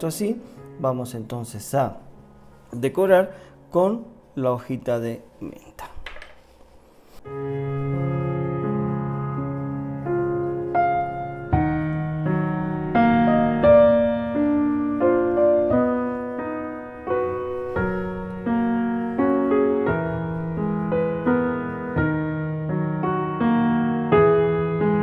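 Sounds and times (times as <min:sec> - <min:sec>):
slow gentle piano music: 0:00.0 - 0:25.0.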